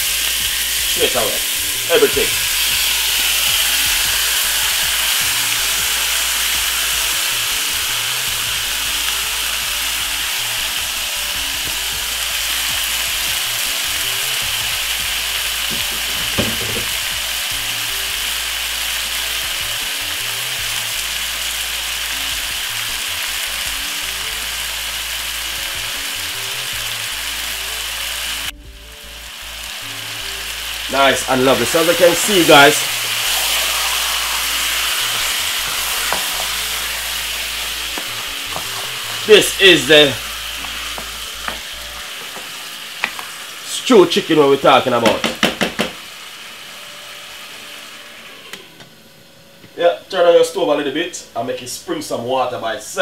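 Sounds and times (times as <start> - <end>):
chicken sizzling in a pot: 0.0 - 53.0
knock: 15.7 - 16.9, 45.0 - 46.0.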